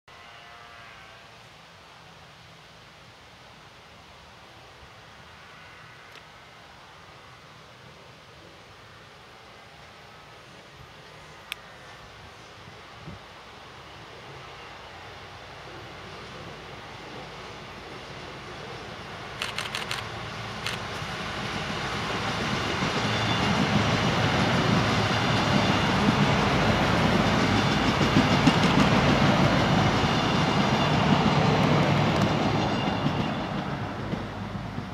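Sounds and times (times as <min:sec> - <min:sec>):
diesel railcars passing: 0:04.2 - 0:34.9
sharp clicks: 0:19.4 - 0:20.8.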